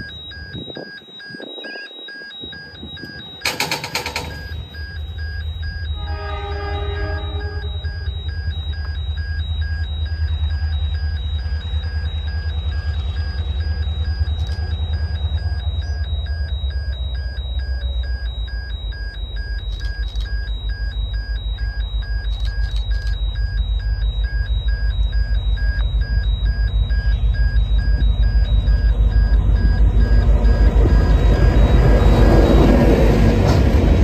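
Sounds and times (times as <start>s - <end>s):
level crossing bell dinging: 0.0s - 8.2s
diesel locomotive rumble: 0.0s - 34.0s.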